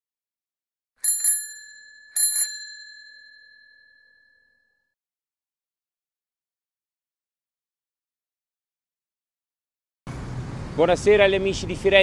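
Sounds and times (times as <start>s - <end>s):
bicycle bell ringing: 1.0s - 4.7s.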